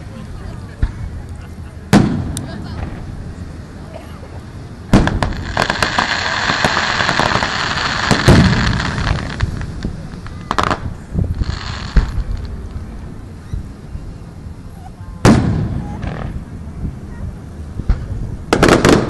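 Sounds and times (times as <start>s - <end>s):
fireworks crackling pops: 0.8s - 3.6s, 4.3s - 13.8s, 15.2s - 16.5s, 17.8s - 19.0s
fireworks bangs: 1.8s - 3.3s, 4.9s - 13.7s, 15.2s - 16.7s, 17.8s - 19.0s
deep fireworks boom: 1.9s - 3.2s, 4.9s - 13.2s, 15.2s - 16.6s, 17.8s - 19.0s.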